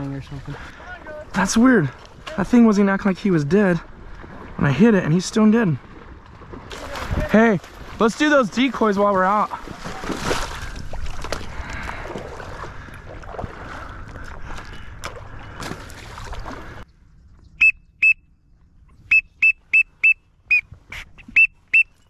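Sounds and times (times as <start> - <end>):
water splashing from wading: 0.0 - 16.8
duck whistle call peeps: 17.6 - 18.3, 19.0 - 22.0.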